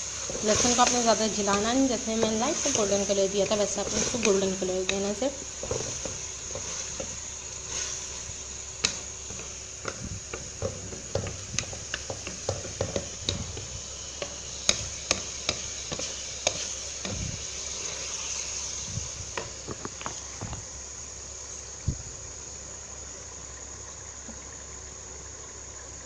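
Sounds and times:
chicken sizzling in pot: 0.0 - 26.0
wooden spatula scraping metal pot: 0.2 - 18.4.

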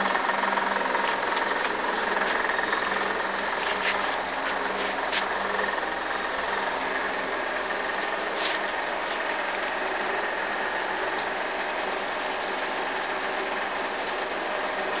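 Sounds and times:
motor running: 0.0 - 10.6.

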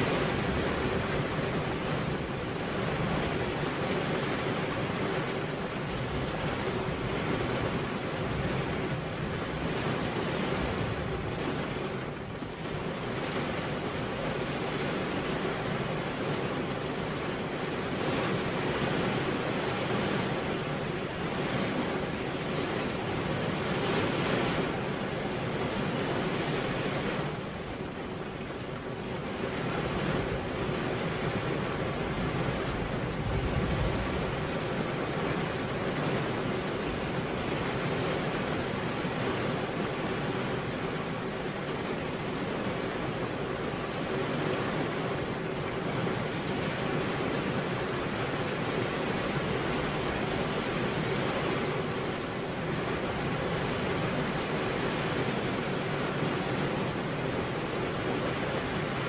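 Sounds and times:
rain on a car window: 0.0 - 59.0.

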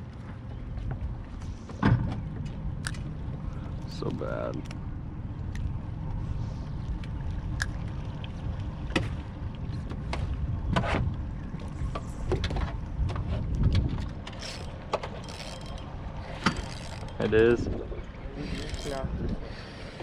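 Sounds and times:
steady low rumble: 0.0 - 20.0
water lapping against boat hull: 0.0 - 20.0
small clicks and splashes: 2.4 - 6.2, 6.8 - 17.5.

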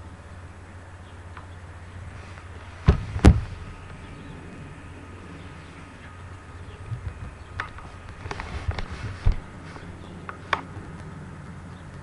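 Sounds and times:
steady low hum: 0.0 - 12.0
sharp knocks: 2.8 - 3.5.

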